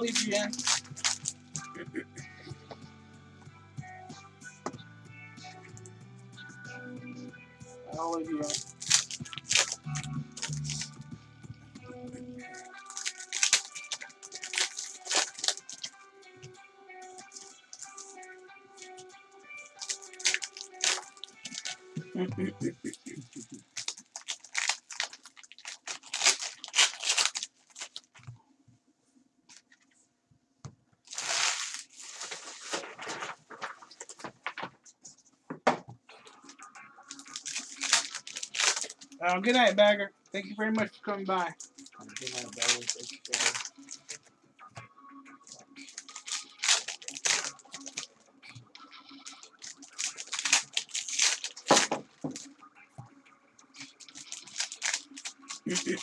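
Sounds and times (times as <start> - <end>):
foil wrappers crinkling: 0.0 - 1.8, 8.4 - 11.0, 12.4 - 16.0, 17.1 - 19.0, 19.6 - 22.0, 22.9 - 28.3, 31.1 - 34.9, 37.1 - 39.7, 41.5 - 44.2, 45.5 - 52.5, 53.8 - 56.0
foil wrappers tearing: 0.0 - 1.8, 8.4 - 11.0, 12.4 - 16.0, 17.1 - 19.0, 19.7 - 21.9, 22.9 - 28.3, 31.1 - 34.7, 37.1 - 39.2, 41.6 - 44.2, 45.5 - 48.1, 49.2 - 52.5, 53.8 - 56.0.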